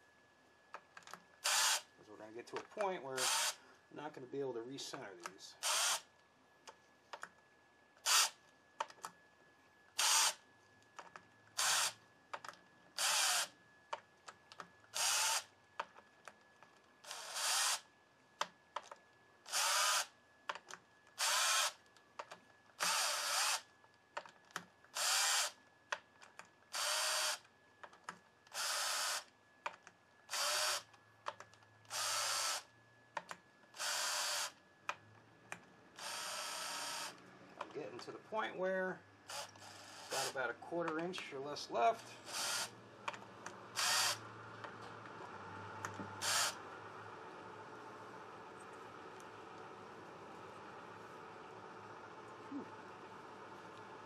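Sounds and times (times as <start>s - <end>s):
cordless drill driving bolts: 1.4s - 1.9s, 3.2s - 3.6s, 5.6s - 6.1s, 10.0s - 10.4s, 11.6s - 12.0s, 13.0s - 13.5s, 14.9s - 15.5s, 17.0s - 17.8s, 19.5s - 20.1s, 21.2s - 21.8s, 22.8s - 23.6s, 25.0s - 25.6s, 26.7s - 27.4s, 28.5s - 29.3s, 30.3s - 30.9s, 31.9s - 32.6s, 33.8s - 34.5s, 36.0s - 37.2s, 39.3s - 40.3s, 42.2s - 42.7s, 43.7s - 44.2s, 45.9s - 46.6s.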